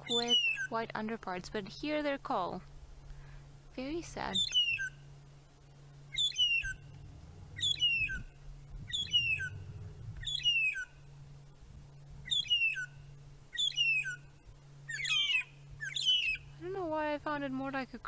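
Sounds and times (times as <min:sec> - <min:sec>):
birds whistling downward calls: 0:00.0 - 0:00.8, 0:04.2 - 0:05.1, 0:06.0 - 0:11.2, 0:12.2 - 0:16.6.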